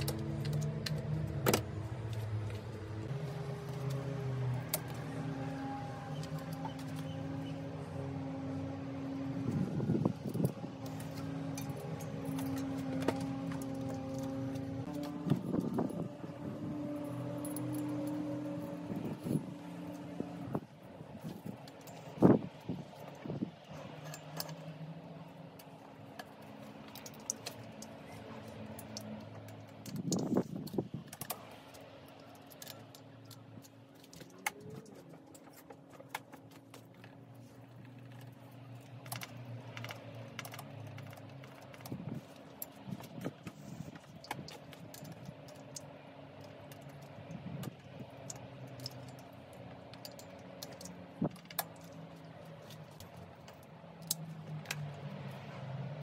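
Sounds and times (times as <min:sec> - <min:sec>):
small metal clicks and clinks: 0:25.6 - 0:37.1, 0:37.7 - 0:55.0.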